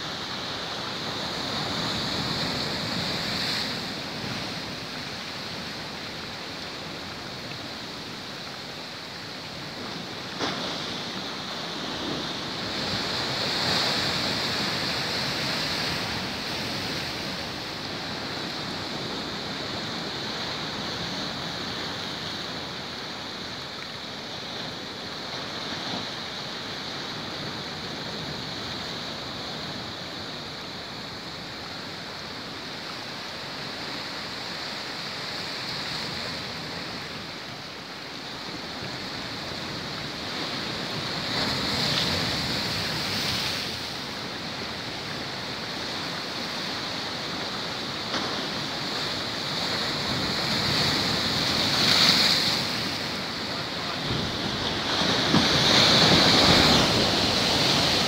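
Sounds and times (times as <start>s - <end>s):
waves crashing: 0.0s - 58.0s
surf breaking on rocks: 46.2s - 58.0s.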